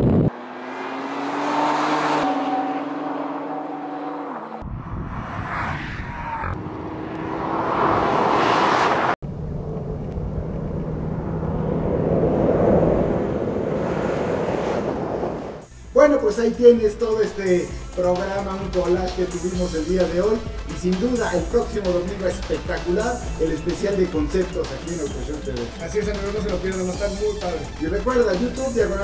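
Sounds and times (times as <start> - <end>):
car engines revving hard: 0.0 - 9.2.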